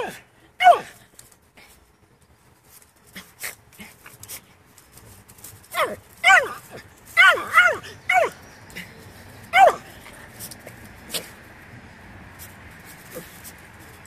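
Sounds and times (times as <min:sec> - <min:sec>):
dog barking: 0:09.5 - 0:09.9.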